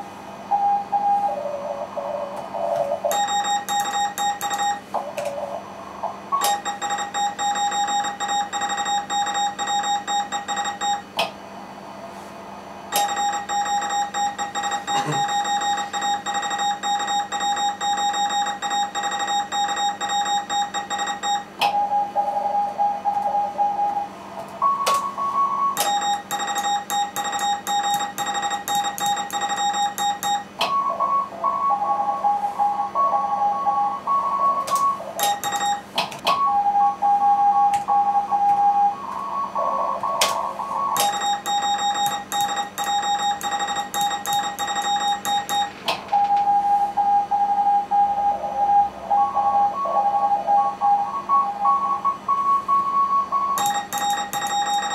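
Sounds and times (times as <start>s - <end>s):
morse code replies through receiver: 3.1s - 4.9s, 6.4s - 11.1s, 12.9s - 21.5s, 25.8s - 30.6s, 35.2s - 35.9s, 41.0s - 45.8s, 53.6s - 54.9s
morse code sidetone: 3.1s - 4.9s, 6.4s - 11.1s, 12.9s - 39.0s, 40.9s - 54.9s.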